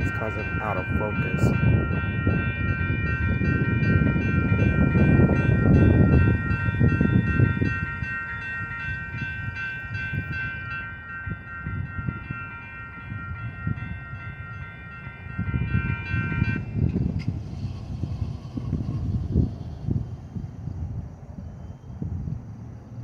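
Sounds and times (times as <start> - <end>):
railroad crossing bell ringing: 0.0 - 17.5
low rumbling noise: 16.6 - 23.0.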